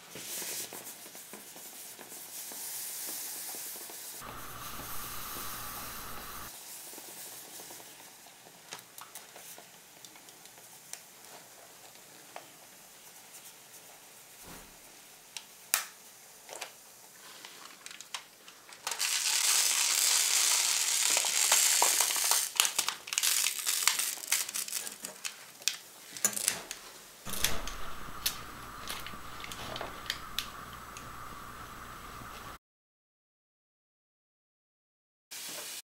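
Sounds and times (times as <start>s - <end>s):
dense hissing crackle: 2.3s - 8.2s, 18.9s - 25.8s, 27.3s - 32.6s
steady low hum: 4.2s - 6.5s, 27.3s - 32.6s
frozen rubber balloon crackling: 19.0s - 25.4s.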